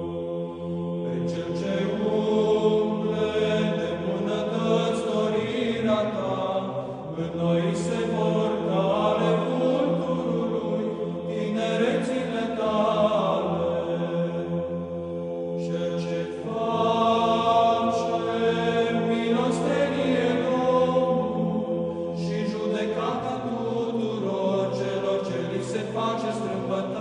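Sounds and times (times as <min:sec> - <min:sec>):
voices chanting a melody: 0:00.0 - 0:27.0.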